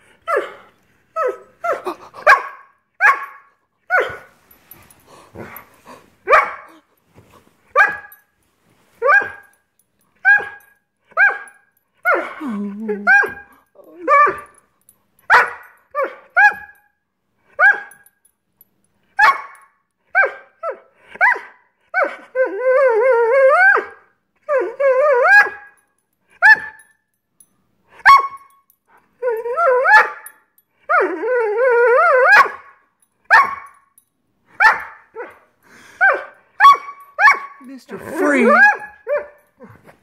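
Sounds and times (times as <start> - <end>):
dog barking: 1.7 - 4.3, 6.3 - 6.8, 15.3 - 16.7, 19.2 - 19.6, 33.3 - 33.7, 34.6 - 35.0, 36.0 - 37.6
dog wavering cries: 29.2 - 30.3, 30.9 - 32.7, 36.0 - 39.4.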